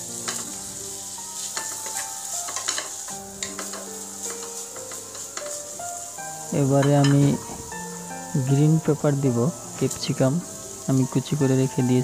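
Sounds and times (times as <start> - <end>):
food sizzling in a frying pan: 0.0 - 12.0
spatula scraping and tapping pan: 0.2 - 0.6, 1.4 - 5.7, 6.7 - 7.4.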